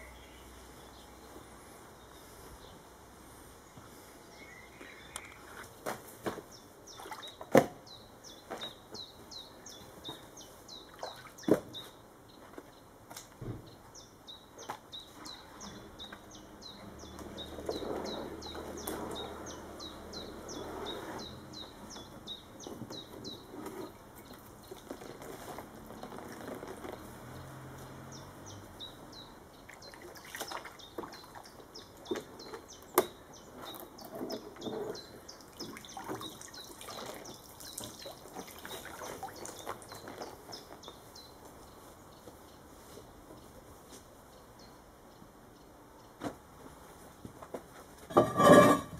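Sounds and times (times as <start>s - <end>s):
water sloshing and dripping: 6.9s - 7.7s, 10.8s - 11.6s, 29.6s - 32.3s, 33.7s - 40.4s.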